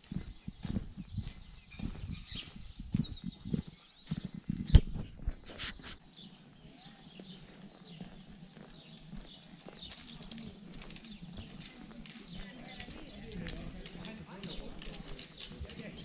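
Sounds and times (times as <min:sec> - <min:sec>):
footsteps on paved road: 0:00.0 - 0:16.0
small birds chirping: 0:00.0 - 0:16.0.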